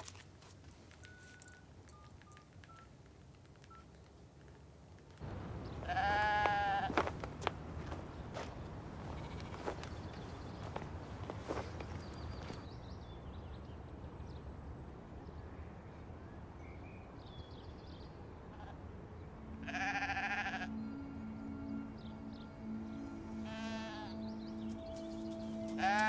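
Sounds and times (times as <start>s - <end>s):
low background noise: 0.0s - 26.0s
soft low music notes: 5.2s - 12.7s, 17.8s - 26.0s
sheep bleating: 5.8s - 7.2s, 9.0s - 9.9s, 18.5s - 18.8s, 19.6s - 20.8s, 23.4s - 24.2s, 25.7s - 26.0s.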